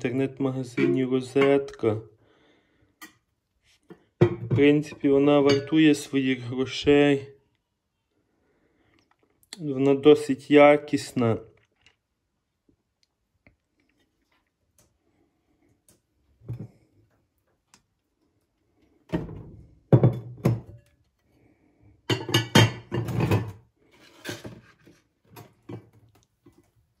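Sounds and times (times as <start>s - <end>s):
glass dish knocking: 0.8s - 1.6s, 4.2s - 4.7s, 5.5s - 5.7s, 19.9s - 20.8s.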